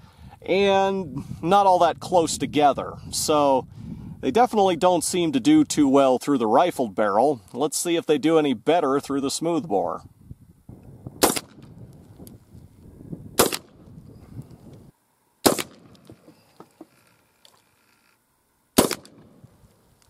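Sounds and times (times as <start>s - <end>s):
shotgun shots: 11.2s - 11.7s, 13.4s - 13.8s, 15.4s - 16.1s, 18.8s - 19.5s.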